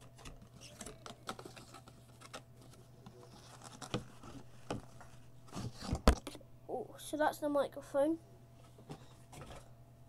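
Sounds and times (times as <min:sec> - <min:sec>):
cardboard rustling and scraping: 0:00.4 - 0:06.1.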